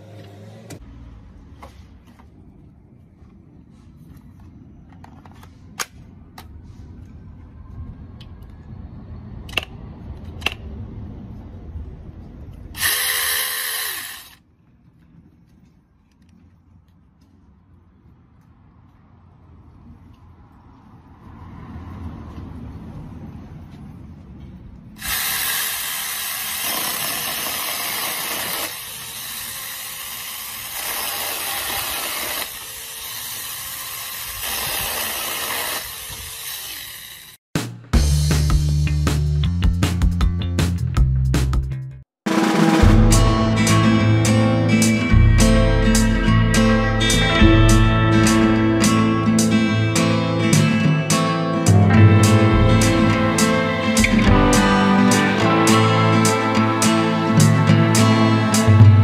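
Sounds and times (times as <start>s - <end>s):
electric chainsaw running: 12.8s - 14.4s, 25.0s - 37.4s.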